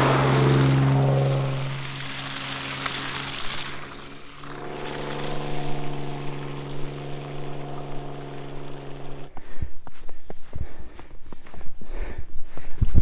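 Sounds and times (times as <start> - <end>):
vehicle engine droning: 0.0 - 9.4
tyre and wind noise: 9.3 - 13.0.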